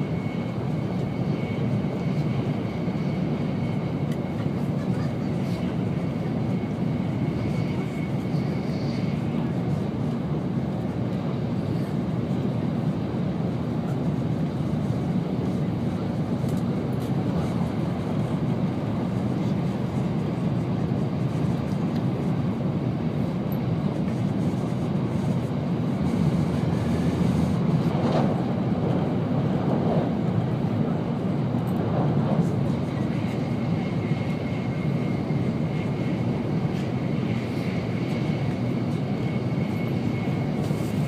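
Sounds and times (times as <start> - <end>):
wheels rumbling on rail: 26.0 - 30.3.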